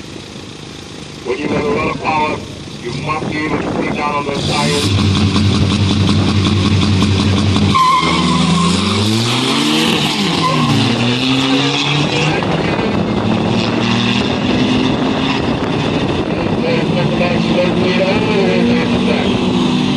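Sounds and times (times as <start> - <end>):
car engines revving and accelerating: 0.0 - 19.9
tyre squeal: 7.7 - 11.1.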